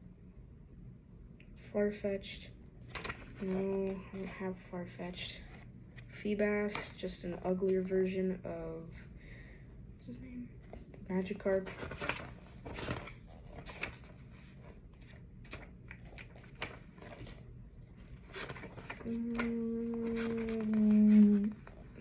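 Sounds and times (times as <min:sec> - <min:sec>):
cards clicking and rustling: 0:02.9 - 0:04.4, 0:11.6 - 0:17.4, 0:18.0 - 0:22.0
person humming: 0:19.1 - 0:21.6.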